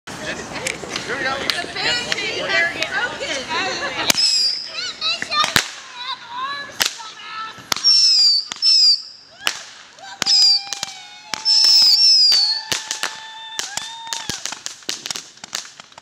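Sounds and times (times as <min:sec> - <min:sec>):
fireworks cracks and pops: 0:00.5 - 0:16.0
fireworks whistles falling in pitch: 0:04.1 - 0:05.9, 0:06.8 - 0:15.5
low steady whistle: 0:07.8 - 0:09.3, 0:11.4 - 0:12.8.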